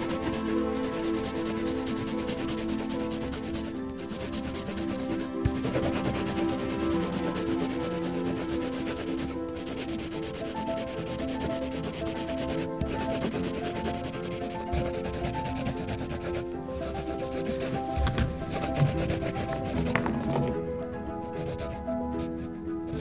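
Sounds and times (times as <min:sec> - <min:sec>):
pencil scratching on paper: 0:00.0 - 0:23.0.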